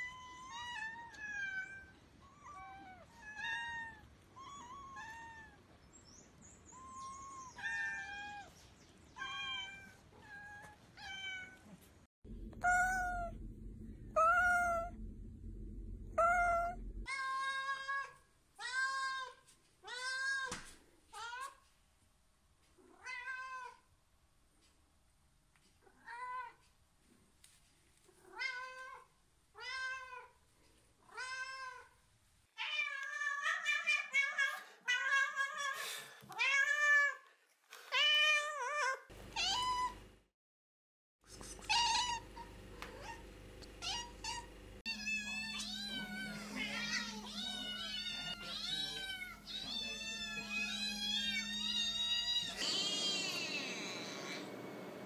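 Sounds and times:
steady low hum: 0:12.2 - 0:17.2, 0:41.3 - 0:55.0
cat meowing: 0:12.6 - 0:13.4, 0:14.2 - 0:15.0, 0:16.1 - 0:19.3, 0:43.8 - 0:54.5
kittens meowing: 0:43.8 - 0:54.5.

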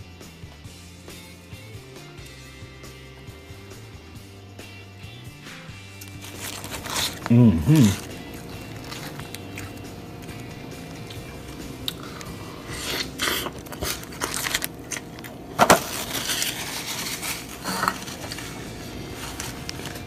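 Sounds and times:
faint steady hum: 0:06.0 - 0:20.0
food and plate handling rustles: 0:06.0 - 0:20.0.

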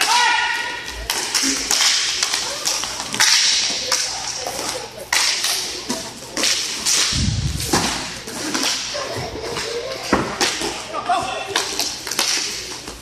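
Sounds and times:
hockey sticks clacking on puck: 0:00.8 - 0:07.1, 0:08.3 - 0:13.0
heavy dull thump: 0:07.1 - 0:08.2.

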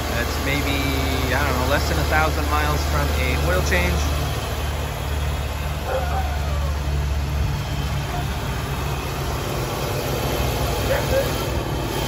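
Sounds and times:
car engine idling: 0:00.0 - 0:12.0.

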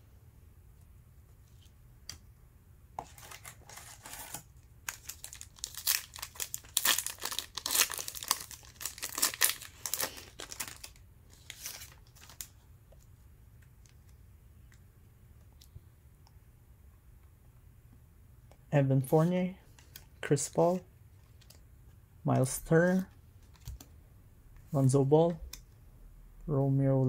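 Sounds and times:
wrapper crinkling and tearing: 0:03.8 - 0:12.5.

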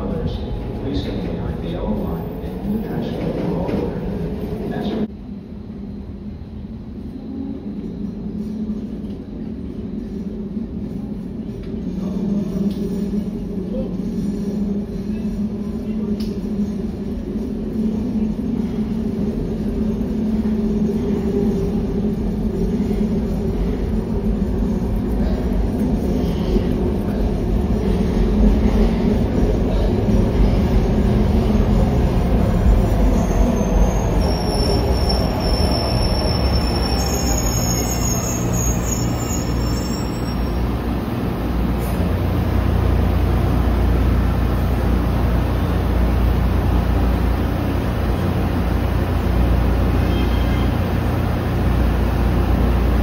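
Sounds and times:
train low rumble: 0:00.0 - 0:53.0
train wheel squeal: 0:32.5 - 0:40.8, 0:49.9 - 0:51.0.

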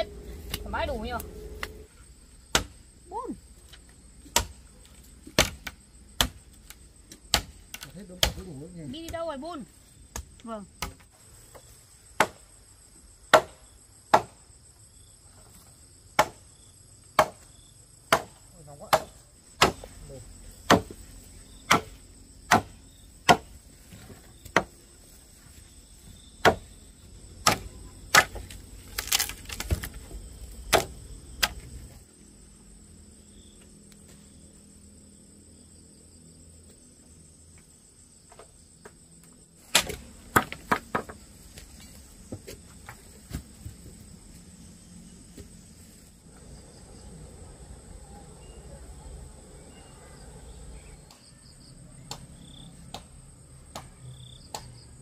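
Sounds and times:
crickets trilling: 0:00.0 - 0:55.0
hand tool striking wood: 0:05.3 - 0:06.4, 0:13.3 - 0:14.4, 0:17.2 - 0:17.4, 0:18.1 - 0:20.0, 0:20.6 - 0:21.0, 0:21.7 - 0:24.8, 0:26.4 - 0:26.7, 0:27.4 - 0:30.0, 0:30.7 - 0:31.6, 0:39.7 - 0:41.2.

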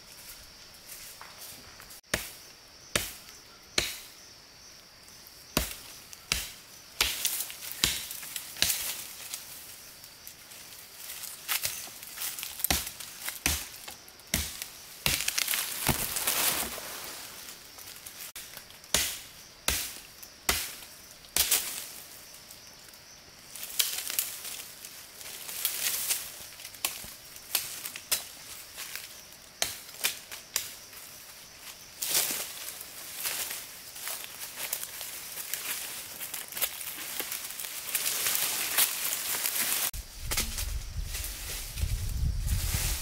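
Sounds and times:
rustling and scraping: 0:15.0 - 0:18.4, 0:32.0 - 0:43.0.

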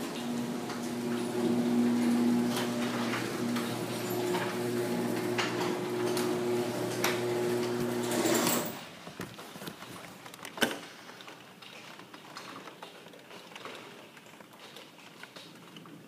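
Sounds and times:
small motor humming with rattle: 0:00.0 - 0:08.8.

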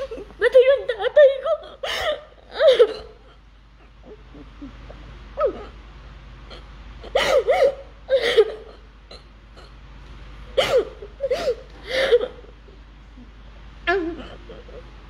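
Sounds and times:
woman sobbing: 0:00.0 - 0:05.8, 0:06.5 - 0:08.9, 0:10.6 - 0:12.8, 0:13.9 - 0:14.9.

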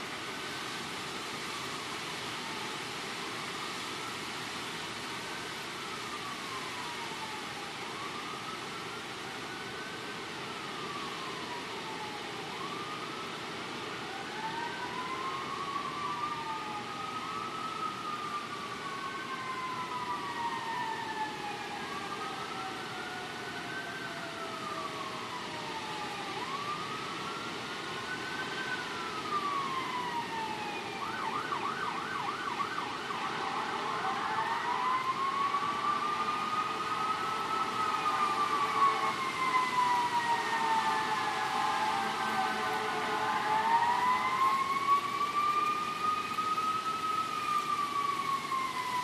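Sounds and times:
emergency sirens wailing: 0:00.0 - 0:49.0
wind through tree leaves: 0:00.0 - 0:49.0
siren warbling yelp: 0:28.1 - 0:49.0.

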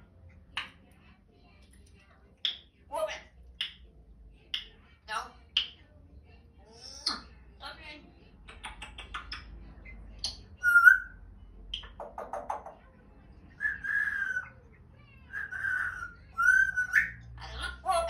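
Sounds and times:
parrot clicks: 0:02.4 - 0:02.6, 0:08.4 - 0:09.5
parrot whistles: 0:13.6 - 0:14.5, 0:15.3 - 0:17.2.

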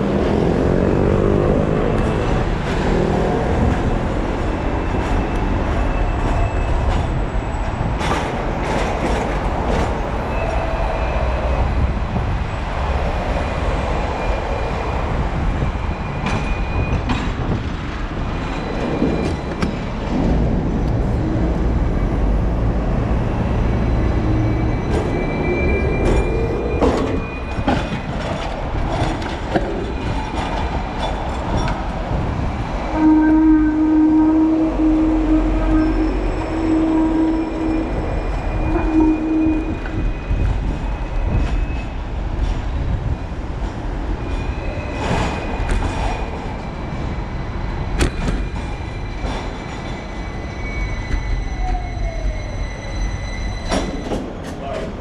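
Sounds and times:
wind rumble on microphone: 0:00.0 - 0:37.2, 0:37.8 - 0:49.9
city street traffic: 0:00.0 - 0:55.0
trams running: 0:00.0 - 0:55.0
low horn-like tone: 0:32.9 - 0:38.0.

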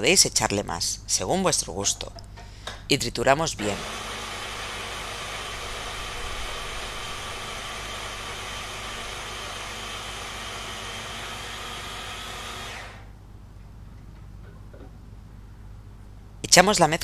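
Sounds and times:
hand blender chopping nuts: 0:06.6 - 0:13.0.

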